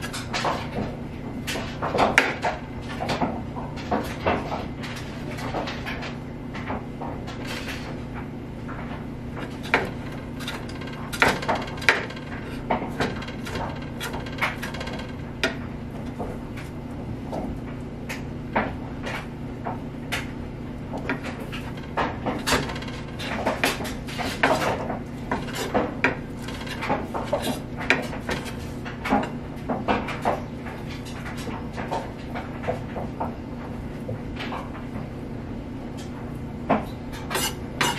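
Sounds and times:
steady low hum: 0:00.0 - 0:37.9
knife chopping on wooden board: 0:36.8 - 0:37.9.

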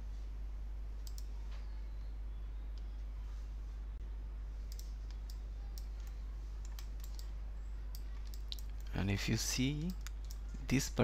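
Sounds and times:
low electrical hum: 0:00.0 - 0:11.0
computer mouse clicks: 0:01.0 - 0:01.3, 0:04.7 - 0:07.3, 0:07.9 - 0:08.9, 0:09.8 - 0:10.4.

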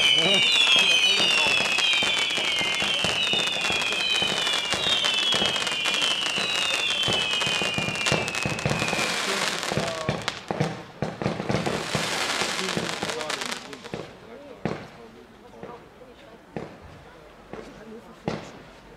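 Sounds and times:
fireworks whistling: 0:00.0 - 0:14.1
fireworks crackling and popping: 0:00.0 - 0:16.9.

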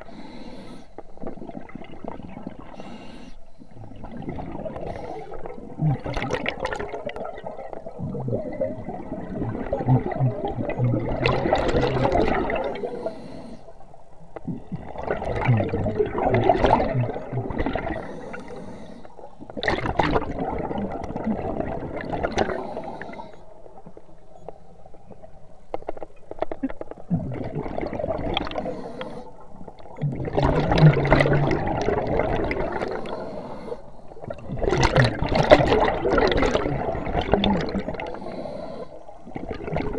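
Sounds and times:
regulator exhaust bubbles gurgling: 0:05.6 - 0:12.8, 0:14.5 - 0:18.0, 0:29.7 - 0:33.0, 0:34.2 - 0:38.2.

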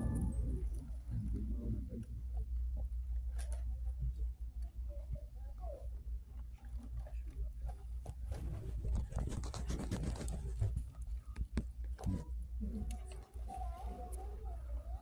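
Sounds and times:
steady low rumble: 0:00.0 - 0:09.3
soft clicks and crackles: 0:00.3 - 0:15.0.

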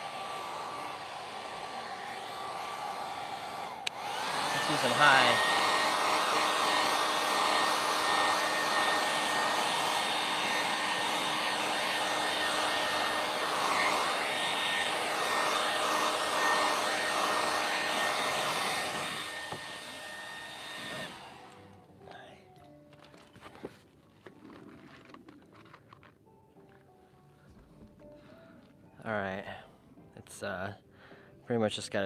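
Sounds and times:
hair dryer running: 0:00.0 - 0:21.8.

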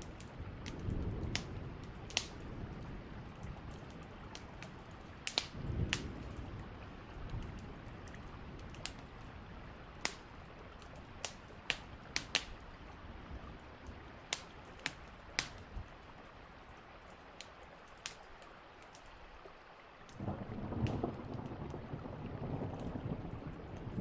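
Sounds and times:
steady light rain: 0:00.0 - 0:24.0
sharp clicks and pops: 0:05.3 - 0:06.1.

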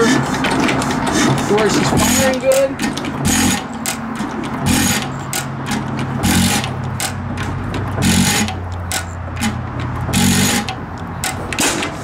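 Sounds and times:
stationary engine hum: 0:00.0 - 0:12.0.

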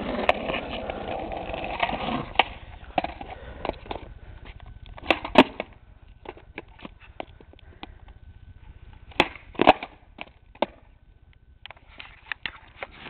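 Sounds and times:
skateboard wheels rumbling: 0:00.0 - 0:11.0
skateboard deck clacking: 0:09.1 - 0:10.9.

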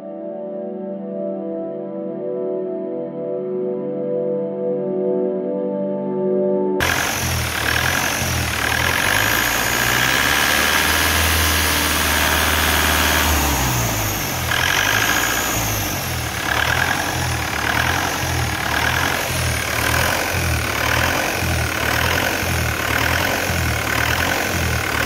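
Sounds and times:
diesel engine revving: 0:06.8 - 0:25.0.

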